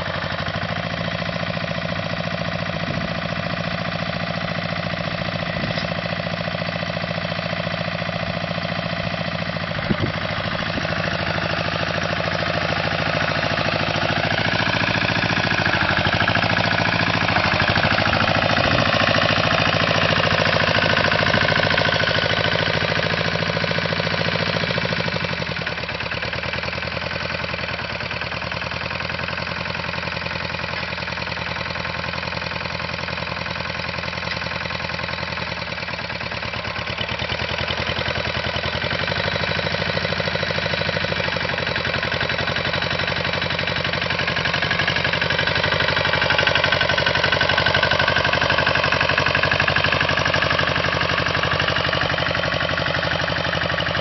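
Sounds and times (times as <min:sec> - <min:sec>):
tractor engine running under load: 0:00.0 - 0:54.0.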